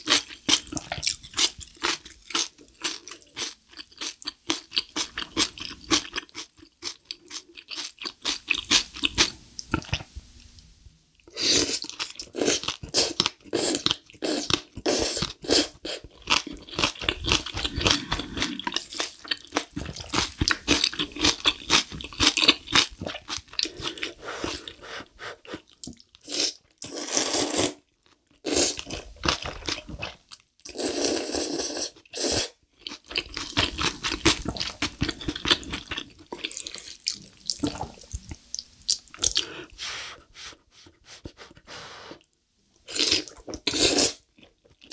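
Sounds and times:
slurping noodles: 0:11.3 - 0:16.0, 0:16.9 - 0:22.4, 0:23.1 - 0:27.8, 0:30.7 - 0:32.6, 0:42.9 - 0:44.2
chewing and mouth smacks: 0:32.8 - 0:39.4.

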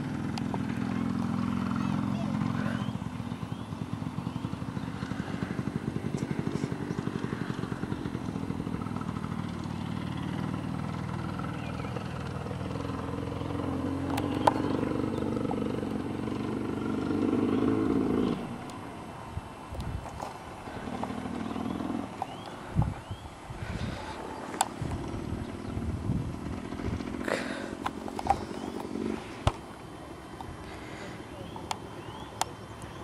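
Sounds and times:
engine running low pulsing: 0:00.0 - 0:33.0.

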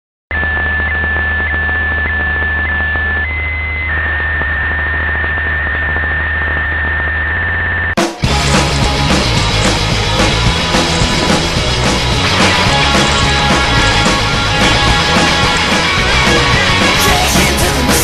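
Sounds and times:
electronic hiss and hum: 0:00.3 - 0:08.0
rock music with drums: 0:08.0 - 0:18.0.

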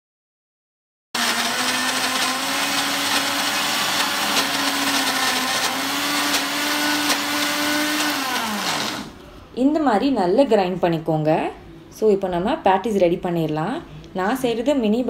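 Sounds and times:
mixer grinder motor whining: 0:01.2 - 0:09.2.

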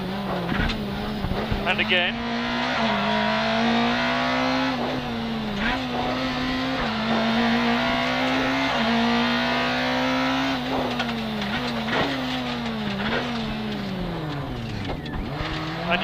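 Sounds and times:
gear change clack: 0:00.0 - 0:01.9, 0:10.5 - 0:16.0
rally car engine at high revs: 0:00.0 - 0:16.0.

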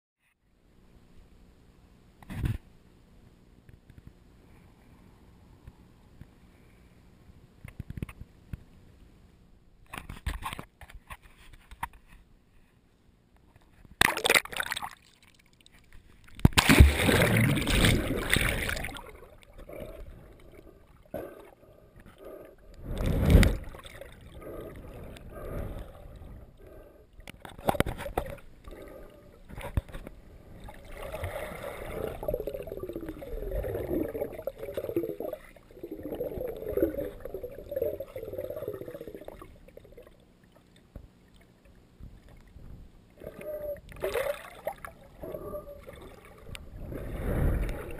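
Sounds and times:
water sloshing and splashing: 0:14.0 - 0:42.6, 0:43.2 - 0:47.9
loud splash: 0:16.5 - 0:19.1
underwater bubbling gurgles: 0:16.8 - 0:40.7, 0:43.2 - 0:47.9.

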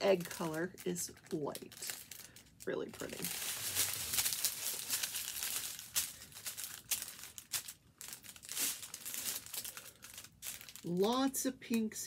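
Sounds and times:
plastic film crinkling: 0:00.0 - 0:12.0.

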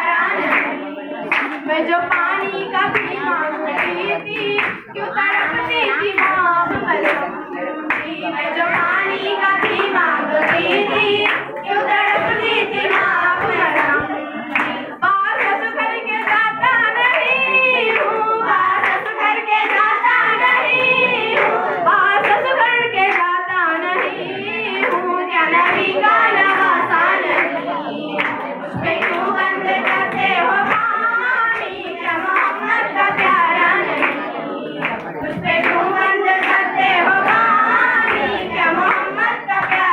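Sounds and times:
girl singing into a microphone: 0:00.0 - 0:27.2
group clapping along: 0:00.0 - 0:39.9.

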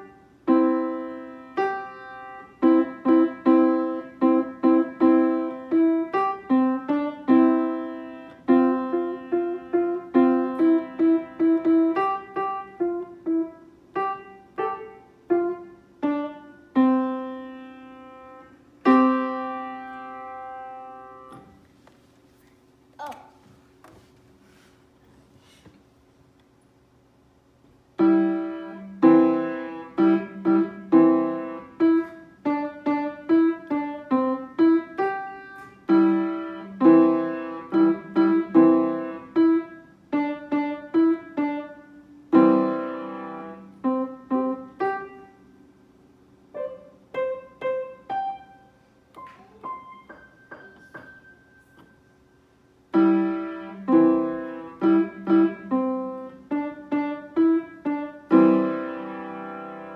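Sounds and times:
acoustic piano chords: 0:00.0 - 0:21.8, 0:26.8 - 0:59.9.

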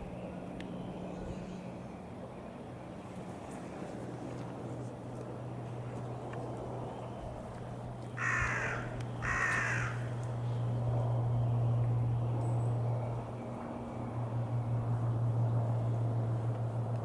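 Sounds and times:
steady low hum: 0:00.0 - 0:17.0
crow cawing: 0:08.2 - 0:10.1.

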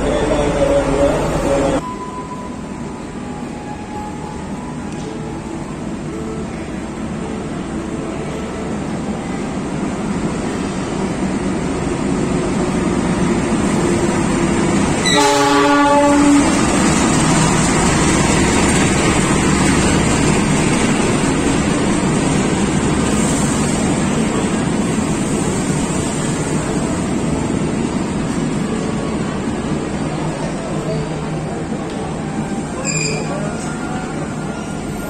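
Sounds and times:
diesel locomotive rumble: 0:04.6 - 0:33.5
train horn blast: 0:15.0 - 0:16.8.

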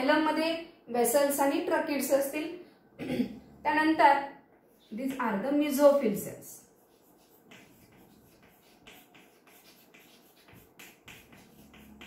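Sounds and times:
chalk writing on blackboard: 0:06.6 - 0:12.0.

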